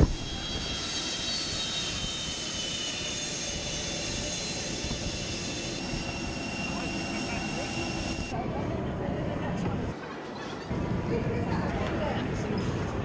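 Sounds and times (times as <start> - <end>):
high whining engine tones: 0.0 - 8.4.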